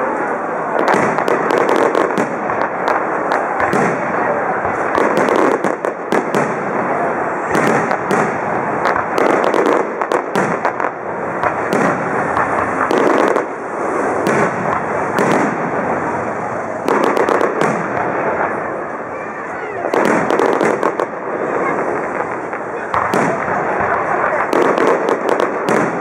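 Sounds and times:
fireworks bursting: 0:00.0 - 0:26.0.

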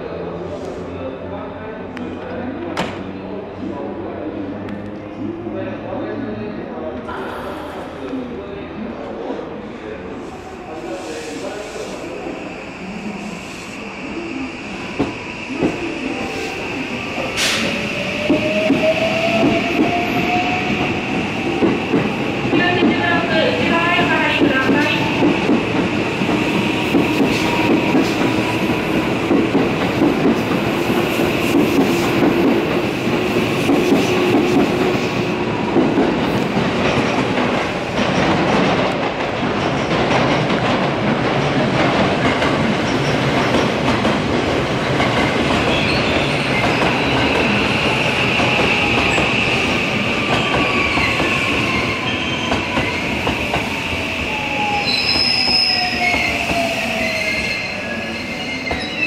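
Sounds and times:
high flange squeal: 0:54.3 - 0:59.0.

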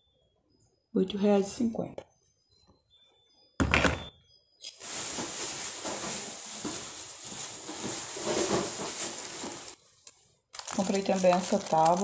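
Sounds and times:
plastic bag rustling: 0:04.7 - 0:12.0.

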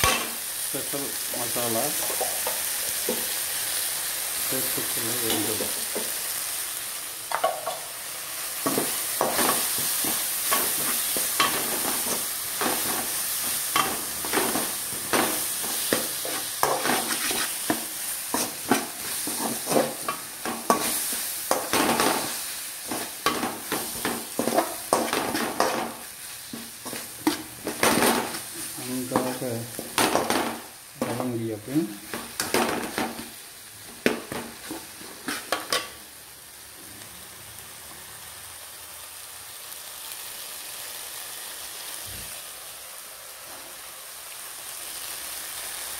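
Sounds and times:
frying sizzle: 0:00.0 - 0:45.9
metal spatula scraping a pot: 0:15.4 - 0:21.2, 0:34.6 - 0:35.9.

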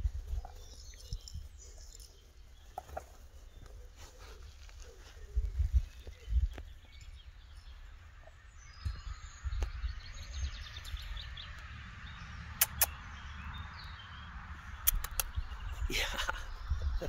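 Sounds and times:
birds chirping: 0:00.0 - 0:17.0
sharp clicks: 0:12.6 - 0:13.0, 0:14.8 - 0:15.4.

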